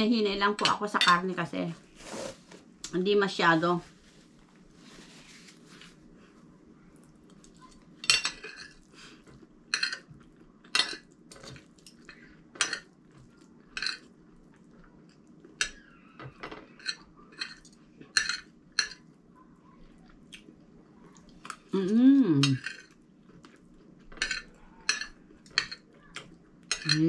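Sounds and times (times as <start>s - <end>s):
cutlery clinking on a plate: 24.2s - 25.9s, 26.7s - 27.0s.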